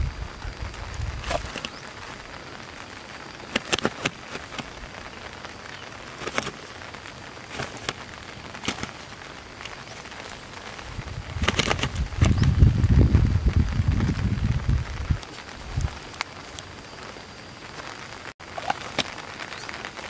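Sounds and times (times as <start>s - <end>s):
steady hiss: 0.0s - 20.0s
fish slapping on grass: 1.2s - 2.2s, 3.4s - 4.8s, 6.1s - 10.6s, 11.2s - 12.4s, 18.4s - 19.5s.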